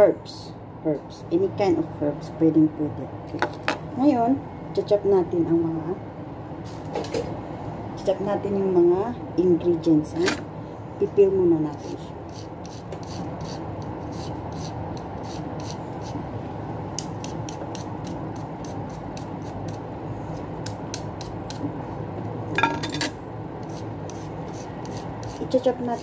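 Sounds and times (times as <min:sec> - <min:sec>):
steady background hum: 0:00.0 - 0:26.0
peeler scraping carrot: 0:11.8 - 0:16.2, 0:17.0 - 0:21.6, 0:23.6 - 0:26.0.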